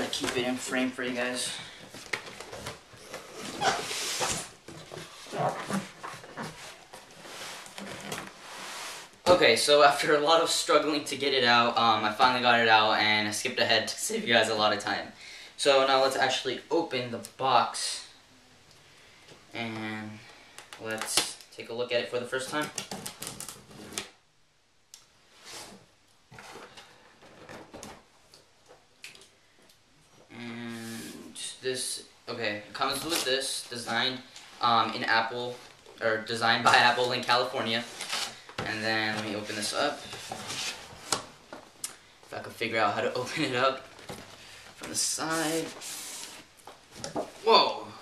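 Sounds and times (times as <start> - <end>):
cardboard scraping and rubbing: 39.0 - 41.3, 45.2 - 46.5.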